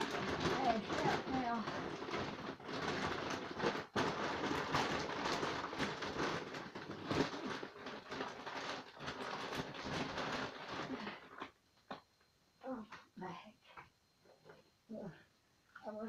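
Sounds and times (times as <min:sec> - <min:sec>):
dry feed sack rustling and crackling: 0:00.0 - 0:11.5.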